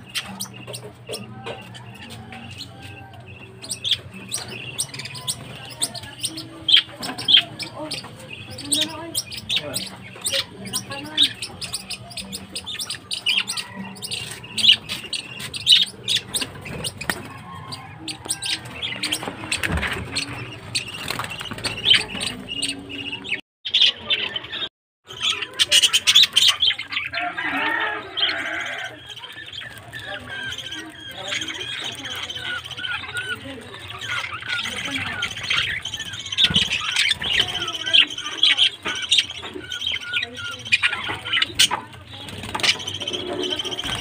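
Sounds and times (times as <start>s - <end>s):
budgerigars chirping and squawking: 0.0s - 44.0s.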